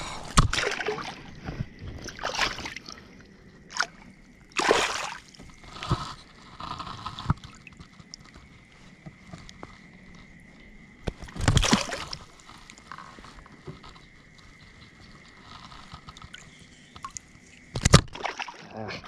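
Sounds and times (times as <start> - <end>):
fish splashing in water: 0.4 - 3.1, 3.7 - 5.4, 11.2 - 12.8, 16.2 - 18.7.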